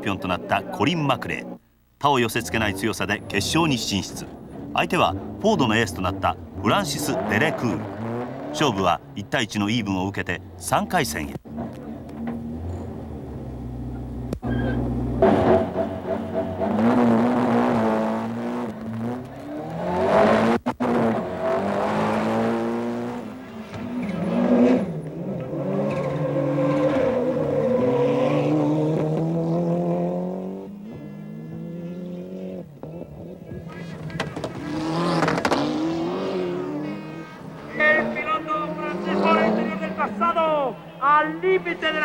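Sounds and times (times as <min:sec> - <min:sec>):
rally car engines revving: 0:02.2 - 0:42.0.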